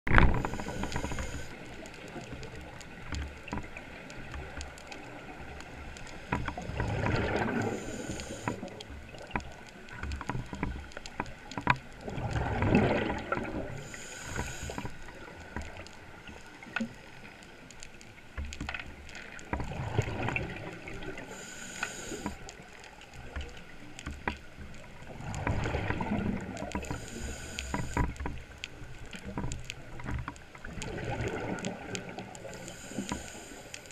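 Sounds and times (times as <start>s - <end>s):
regulator inhale hiss: 0.2s - 1.9s, 7.4s - 8.9s, 13.7s - 15.4s, 21.1s - 22.8s, 26.7s - 28.2s, 32.3s - 33.9s
exhaled air bubbling: 6.5s - 10.0s, 12.0s - 16.3s, 19.5s - 22.5s, 25.0s - 28.2s, 30.6s - 33.9s.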